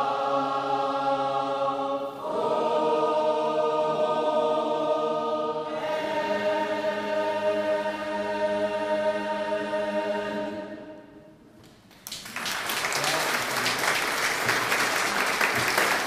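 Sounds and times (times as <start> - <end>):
choir holding a chord: 0.0 - 11.4
audience applauding: 11.9 - 16.0.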